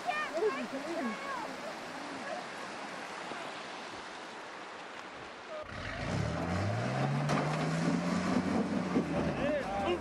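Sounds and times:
waterfall rushing: 0.0 - 10.0
truck engine revving: 5.6 - 10.0.

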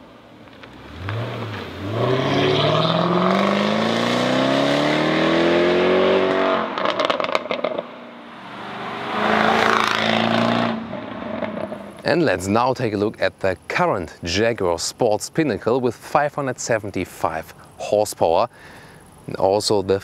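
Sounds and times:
exhaust pops and crackles: 0.4 - 1.7, 6.8 - 7.9
car engine revving: 0.6 - 12.1.

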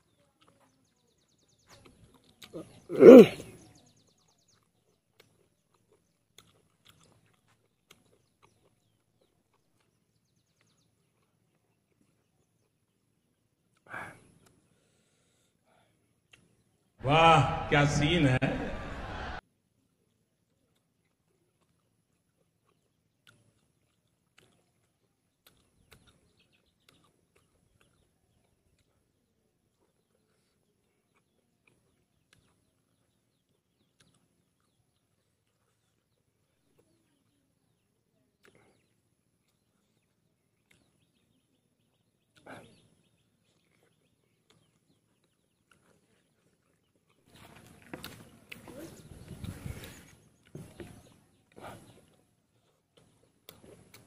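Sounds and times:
faint chewing clicks: 0.0 - 17.0, 19.7 - 54.0
loud grunt-like vocal sound: 2.9 - 3.5.

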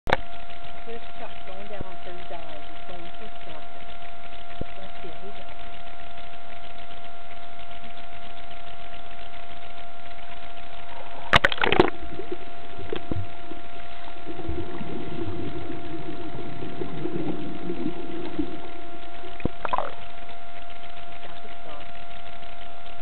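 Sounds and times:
underwater breath bubbling: 10.8 - 21.8
camera splashing into water: 11.3 - 13.2.

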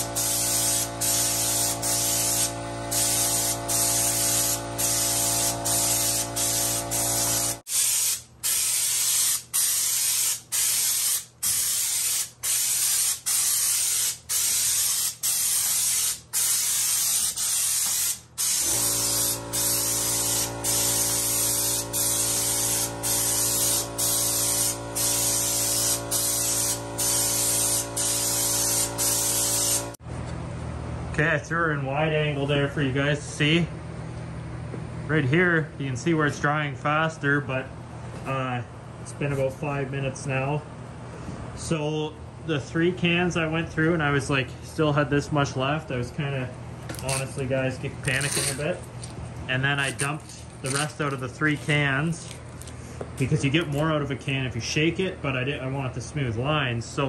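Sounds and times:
steady machine hum: 0.0 - 7.6
spray gun hissing: 0.0 - 30.0.

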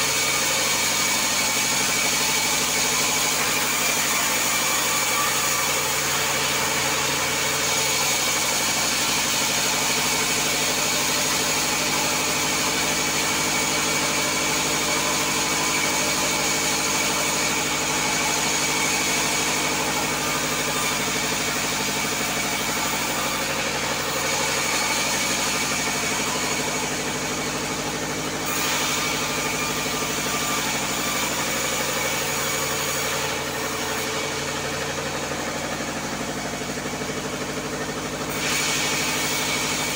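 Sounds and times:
bandsaw mill droning: 0.0 - 39.9
saw blade cutting wood: 0.0 - 39.9.

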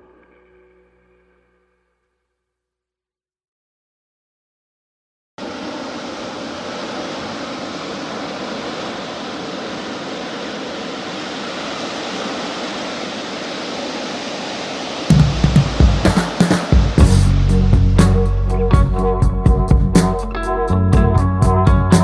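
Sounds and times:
steady rushing hiss: 5.4 - 19.0.

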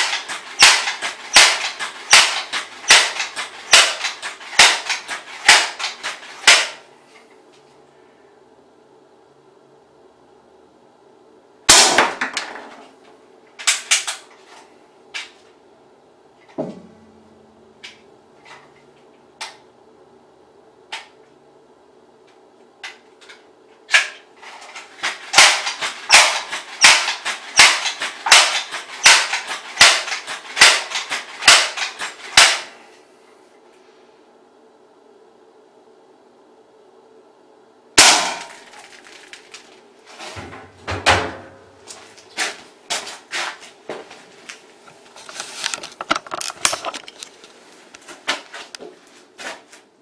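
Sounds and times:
pellet gun shots: 0.0 - 6.8, 11.7 - 12.5, 25.0 - 32.7, 38.0 - 39.0.

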